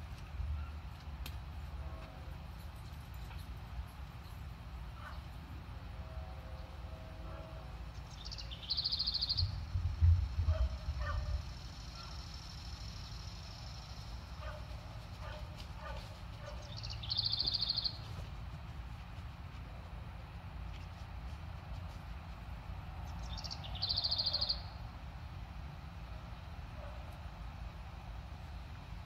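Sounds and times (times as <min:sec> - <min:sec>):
high rapid bird trill: 0:23.2 - 0:24.8.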